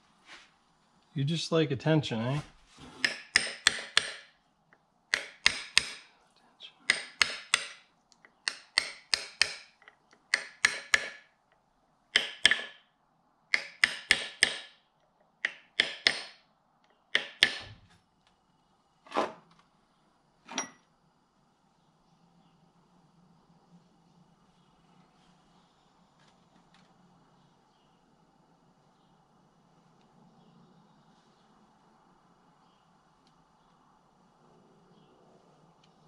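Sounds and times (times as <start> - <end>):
sharp metal clicks: 5.1 - 6.1, 6.9 - 11.3, 12.1 - 12.8.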